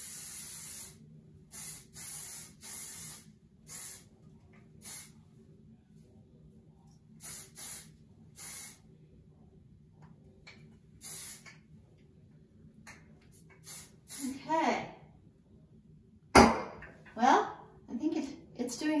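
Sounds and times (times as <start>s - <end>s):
hairspray hissing bursts: 0.0s - 4.1s, 4.8s - 5.1s, 7.2s - 8.8s, 11.0s - 11.5s, 13.6s - 14.4s.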